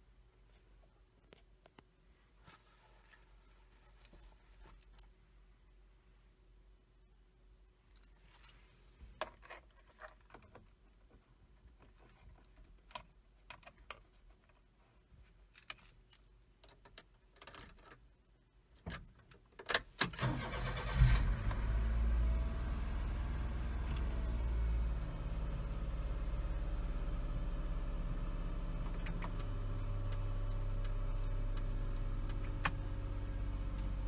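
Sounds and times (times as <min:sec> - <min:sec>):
engine cranking and idling: 0:20.2 - 0:27.1.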